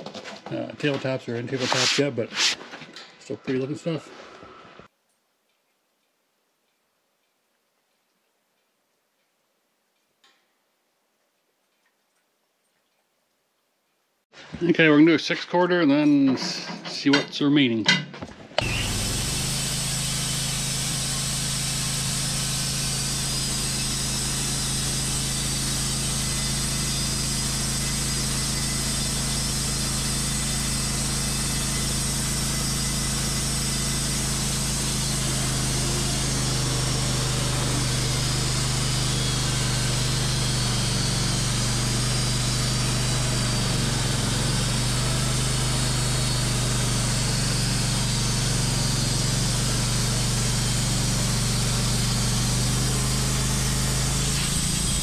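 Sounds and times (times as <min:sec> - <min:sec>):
band sawmill running: 0:00.0 - 0:02.6, 0:18.6 - 0:55.0.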